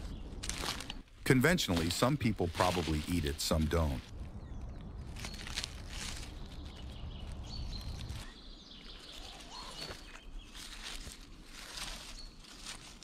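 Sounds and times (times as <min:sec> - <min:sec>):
dry leaves rustling and crackling: 0:00.0 - 0:13.0
bird chirps: 0:04.3 - 0:10.9.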